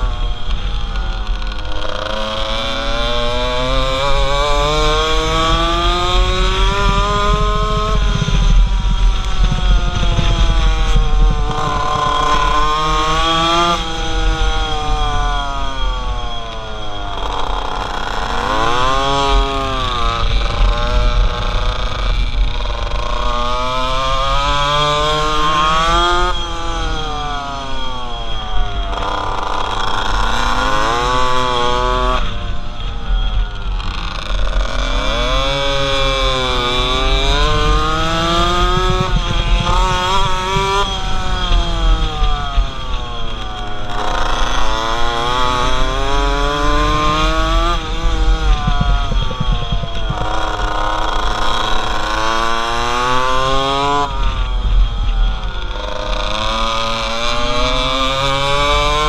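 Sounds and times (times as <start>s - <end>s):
small two-stroke engine revving: 0.0s - 59.0s
wind buffeting microphone: 3.8s - 17.2s, 31.2s - 59.0s.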